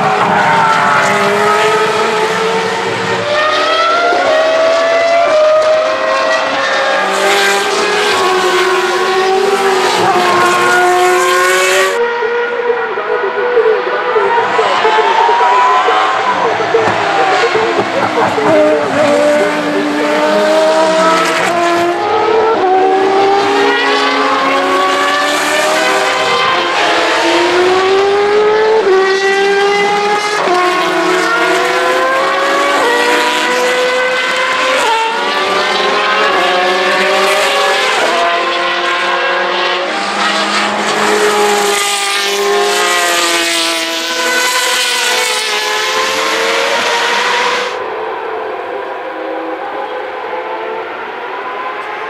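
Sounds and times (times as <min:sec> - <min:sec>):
racing car engines at high revs: 0:00.0 - 0:52.0.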